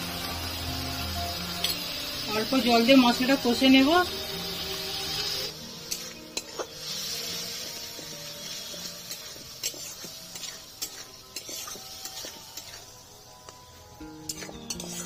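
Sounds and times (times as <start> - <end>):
paste sizzling in a pan: 0.0 - 15.0
metal spatula scraping pan: 5.8 - 7.2, 8.9 - 12.9, 14.2 - 15.0.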